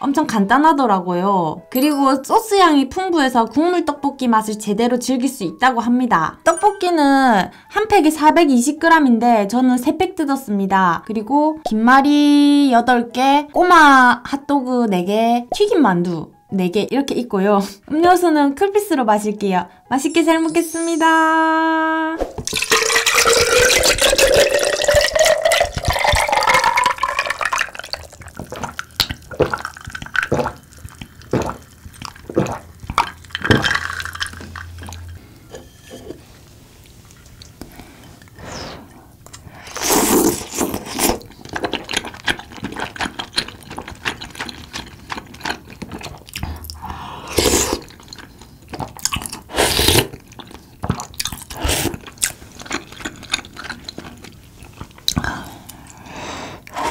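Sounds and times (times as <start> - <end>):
person slurping broth: 22.2 - 32.9, 38.0 - 39.0, 39.6 - 41.3, 46.4 - 48.0, 49.5 - 50.2, 51.5 - 52.1, 56.6 - 56.9
drink poured into glass with ice: 22.4 - 28.5, 33.0 - 35.1
ice clinking in glass: 22.5 - 28.1, 33.1 - 35.2.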